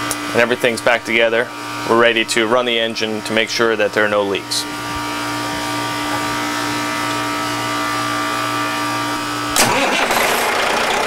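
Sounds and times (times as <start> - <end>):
machinery hum with held tones: 0.0 - 9.9
marine diesel engine running: 9.6 - 11.0.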